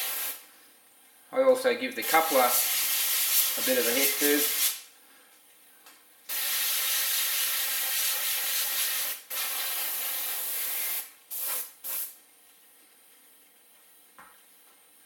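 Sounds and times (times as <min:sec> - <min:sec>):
airbrush spraying hissing bursts: 0:00.0 - 0:00.4, 0:02.0 - 0:04.8, 0:06.3 - 0:12.2.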